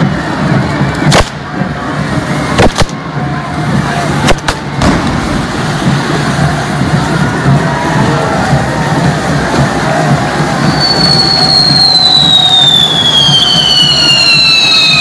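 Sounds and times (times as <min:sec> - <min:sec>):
firework fountains hissing: 0:00.0 - 0:15.0
sharp firework bangs: 0:02.6 - 0:03.0, 0:04.2 - 0:06.5.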